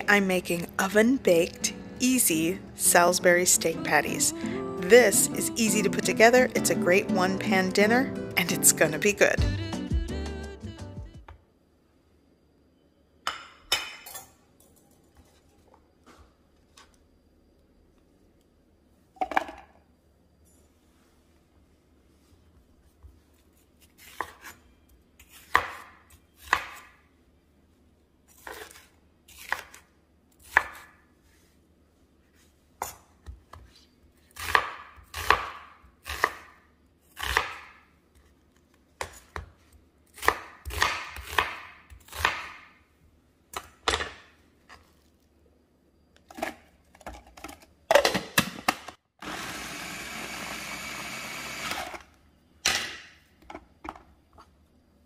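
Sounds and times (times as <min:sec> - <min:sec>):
food processor running: 0:49.2 - 0:52.0.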